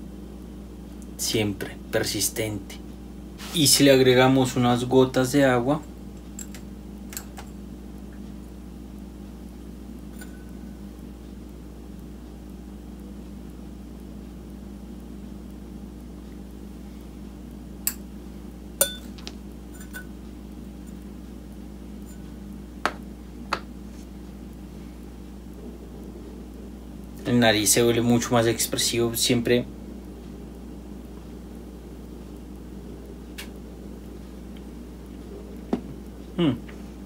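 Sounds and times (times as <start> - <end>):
low room hum: 0.0 - 37.0
glass clinks: 18.8 - 19.1.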